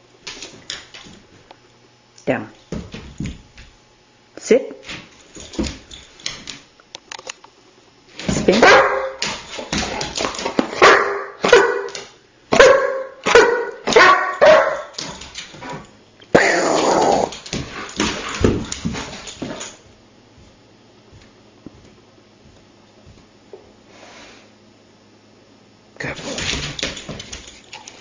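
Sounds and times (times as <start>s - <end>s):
dog barking and whining: 8.5s - 9.2s, 10.7s - 15.0s.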